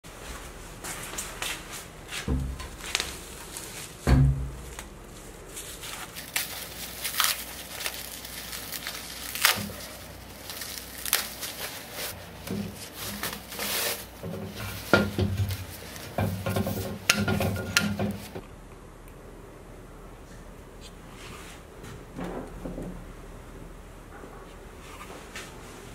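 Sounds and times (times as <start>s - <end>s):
paper wrapping tearing: 5.6s - 18.4s
log knocking on metal: 14.2s - 18.4s.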